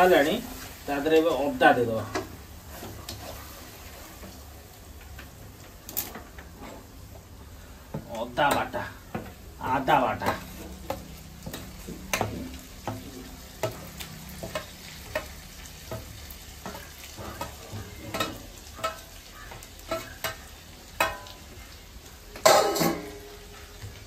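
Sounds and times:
paste frying in hot oil: 0.0 - 24.0
spoon scraping and knocking pan: 5.9 - 21.7, 22.3 - 24.0.

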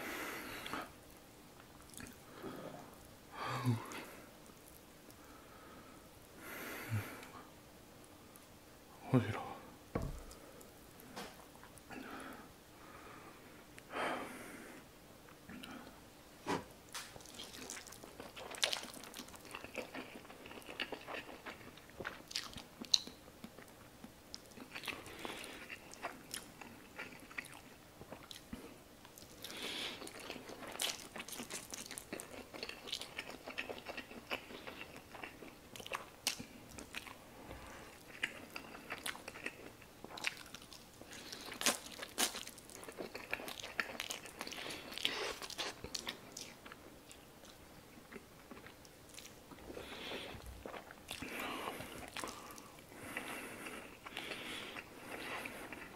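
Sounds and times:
chewing with wet mouth smacks: 1.6 - 2.2, 17.0 - 55.9.

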